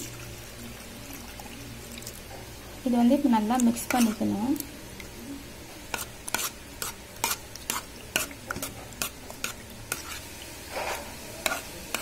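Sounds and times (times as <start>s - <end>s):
spoon mashing food in a pot: 3.4s - 4.7s, 5.8s - 12.0s.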